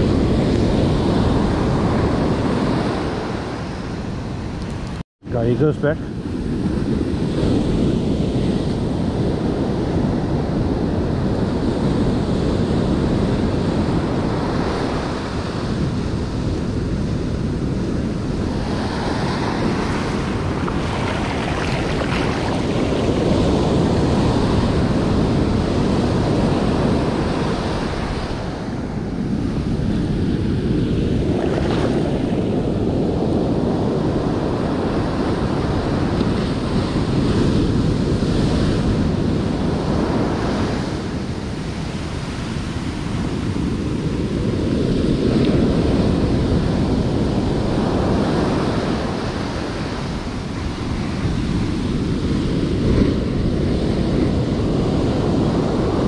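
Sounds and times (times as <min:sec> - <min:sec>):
ocean surf breaking on beach: 0:00.0 - 0:56.0
wind buffeting microphone: 0:00.0 - 0:56.0.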